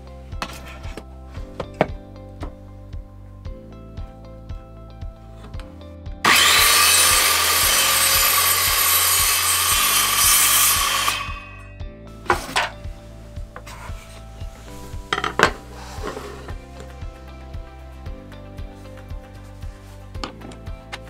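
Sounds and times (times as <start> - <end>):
circular saw cutting wood: 6.3 - 11.7.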